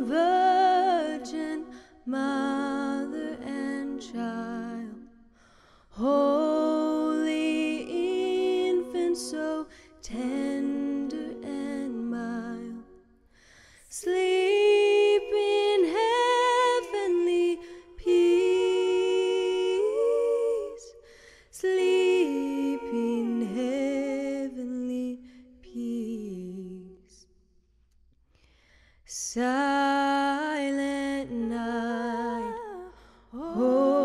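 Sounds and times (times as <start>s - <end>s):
woman singing wordless vowels: 0.0s - 5.1s, 13.9s - 21.0s, 21.6s - 27.2s, 29.2s - 34.0s.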